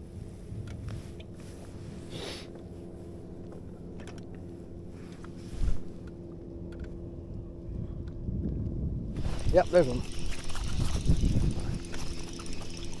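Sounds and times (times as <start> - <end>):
electric motor humming: 9.2 - 13.0.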